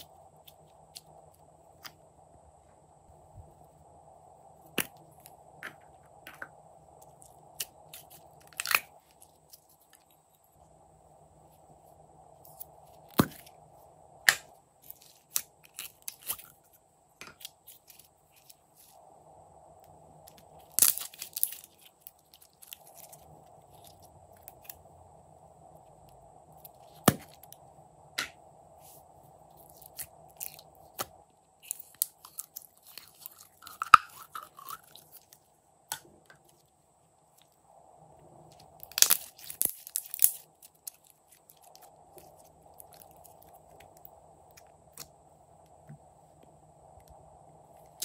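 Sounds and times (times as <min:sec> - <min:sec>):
faint steady hum: 0:00.0 - 0:48.0
sticky slime crackles: 0:38.8 - 0:44.0.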